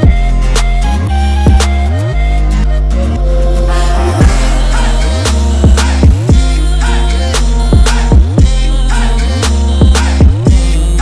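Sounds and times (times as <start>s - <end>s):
electronic music with heavy bass: 0.0s - 11.0s
drum hit: 4.2s - 6.5s.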